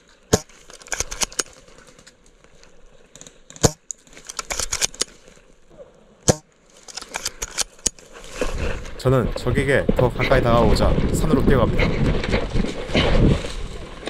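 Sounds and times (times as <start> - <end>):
dry grass crackling: 0.0 - 5.7, 6.3 - 14.0
small clicks: 0.6 - 2.2, 3.1 - 5.4, 6.3 - 8.0
airsoft rifle shots cracking: 3.6 - 5.0.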